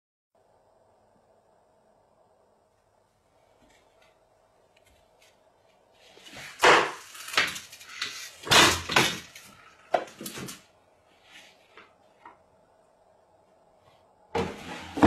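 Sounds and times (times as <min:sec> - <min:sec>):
thumps and scraping knocks: 0:14.4 - 0:15.0.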